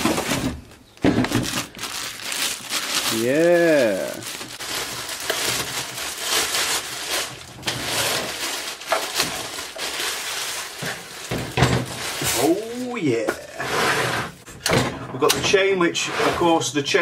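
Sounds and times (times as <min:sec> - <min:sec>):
plastic bag crinkling: 0:00.0 - 0:13.1.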